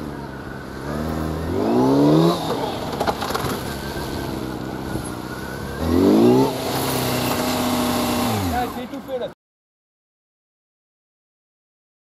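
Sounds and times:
motorcycle engine revving: 0:00.0 - 0:09.3.

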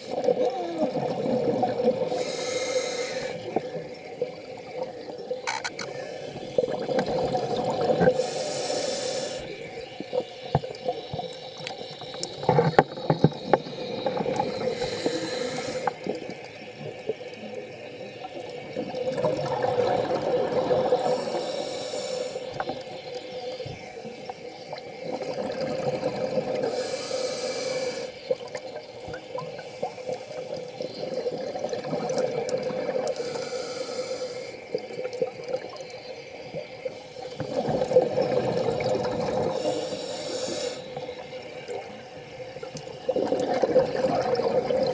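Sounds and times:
regulator inhale hiss: 0:02.0 - 0:03.7, 0:05.8 - 0:07.0, 0:08.0 - 0:09.7, 0:12.0 - 0:16.4, 0:20.9 - 0:22.8, 0:26.5 - 0:28.3, 0:29.5 - 0:31.1, 0:33.1 - 0:34.8, 0:36.8 - 0:37.9, 0:39.3 - 0:41.3
gurgling exhaust bubbles: 0:18.7 - 0:21.1, 0:37.4 - 0:39.7, 0:43.1 - 0:44.9.

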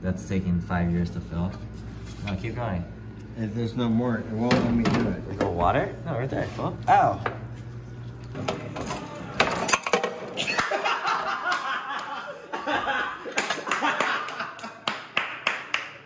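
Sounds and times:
people laughing: 0:10.3 - 0:15.1.

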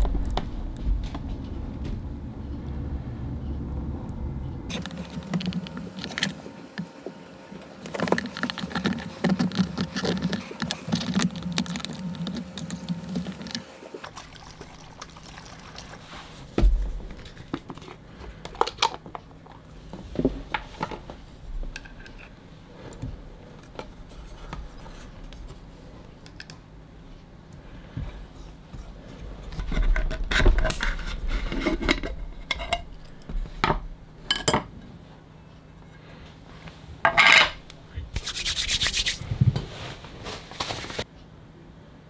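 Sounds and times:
hands squelching wet material: 0:38.1 - 0:39.3.

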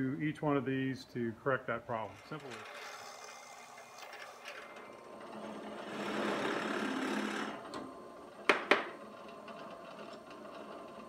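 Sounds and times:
drill press motor running: 0:02.3 - 0:11.0
drill bit cutting wood: 0:05.5 - 0:07.7.

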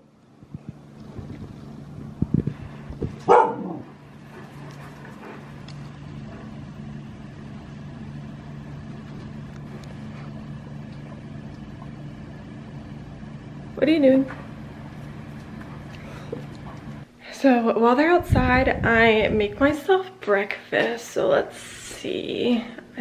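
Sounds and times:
low hum: 0:00.0 - 0:17.2
dog barking: 0:03.2 - 0:03.9.

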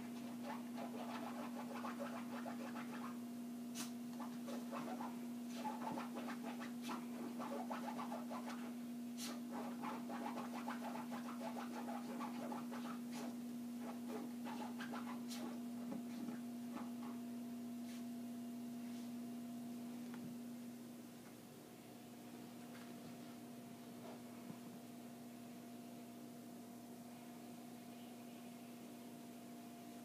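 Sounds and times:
steady low hum: 0:00.0 - 0:30.0
dog claws scratching: 0:00.2 - 0:03.1, 0:03.8 - 0:15.6.

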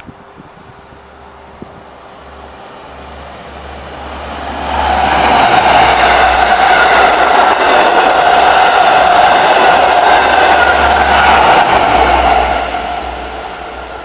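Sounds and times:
train wheels rumbling on rails: 0:00.0 - 0:14.0.

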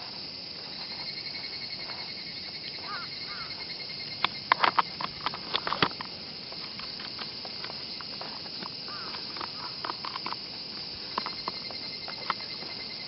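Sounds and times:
steady high hiss: 0:00.0 - 0:13.0
clicks and taps handling rifle: 0:04.2 - 0:10.4, 0:11.1 - 0:12.4.

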